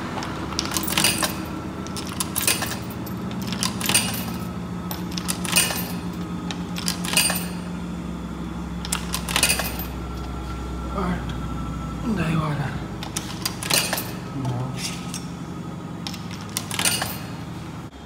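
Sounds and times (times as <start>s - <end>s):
steady low hum: 0.0s - 18.0s
coins clinking into slot: 0.2s - 7.7s, 8.8s - 10.0s, 13.0s - 15.3s, 16.0s - 17.5s.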